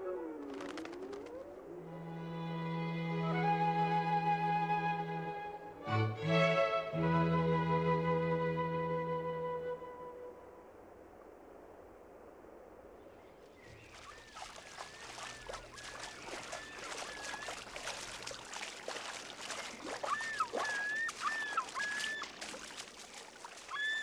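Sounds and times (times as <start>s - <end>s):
bird splashing across water: 13.0s - 24.0s
loon wavering calls: 13.8s - 24.0s.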